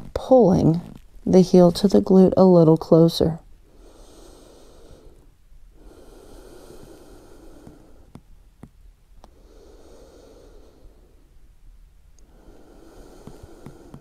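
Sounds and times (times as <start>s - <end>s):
woman breathing deeply: 3.6s - 8.3s, 9.3s - 11.4s, 12.2s - 14.0s.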